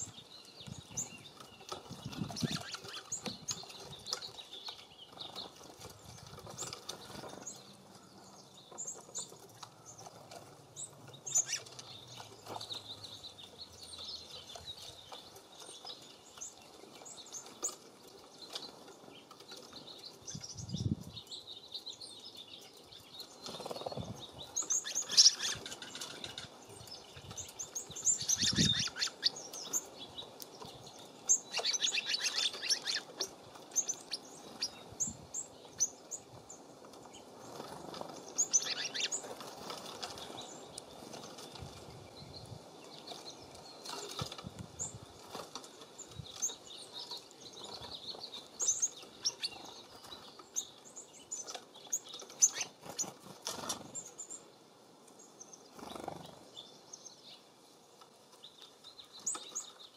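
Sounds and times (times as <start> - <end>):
songbirds chirping and twittering: 0.0 - 59.9
fluttering wingbeats: 0.1 - 8.1, 23.0 - 29.9, 37.0 - 42.0, 51.5 - 54.2, 55.7 - 56.5.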